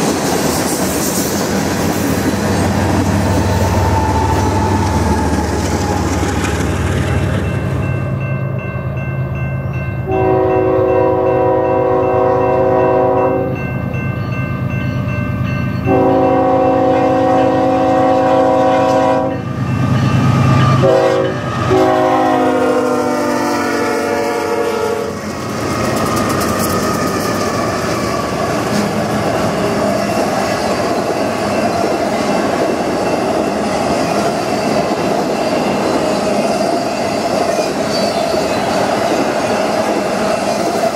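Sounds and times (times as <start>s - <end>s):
train wheels clacking over rails: 0.0s - 7.9s, 25.1s - 40.9s
locomotive engines droning: 0.0s - 40.9s
train horn blasts: 10.0s - 13.6s, 15.8s - 25.2s.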